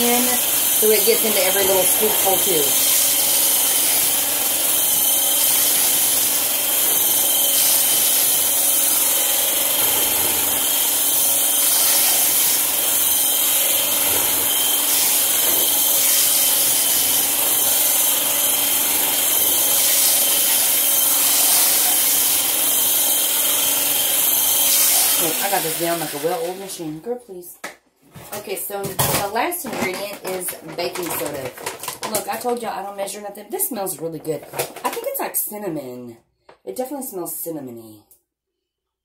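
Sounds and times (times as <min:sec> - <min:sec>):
immersion blender motor whine: 0:00.0 - 0:26.8.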